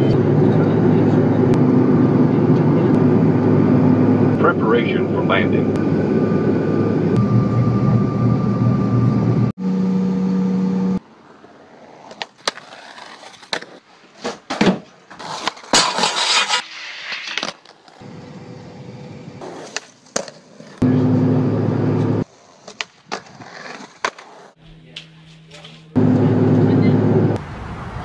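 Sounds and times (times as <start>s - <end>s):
skateboard on wooden floor: 12.0s - 18.0s.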